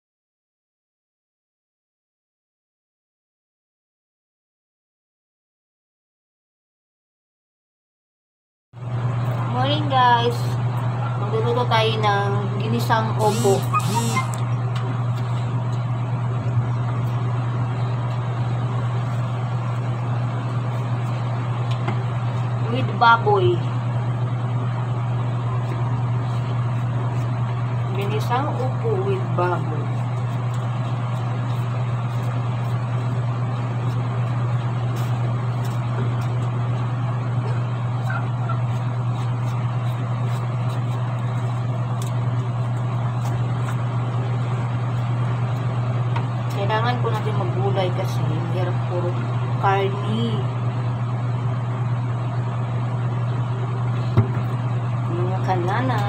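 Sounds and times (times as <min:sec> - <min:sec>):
low mechanical hum: 0:08.8 - 0:56.0
knife peeling gourd: 0:25.6 - 0:36.9, 0:37.5 - 0:45.7.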